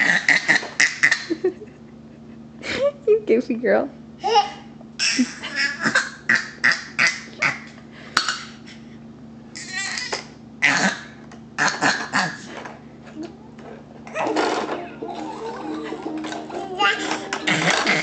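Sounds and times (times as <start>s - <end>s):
baby laughing in rapid bursts: 4.2s - 7.7s, 15.1s - 18.0s.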